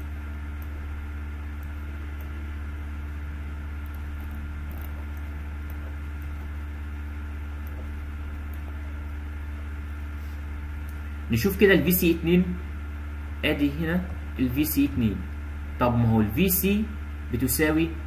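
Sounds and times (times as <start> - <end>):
low hum with hiss: 0.0 - 18.0.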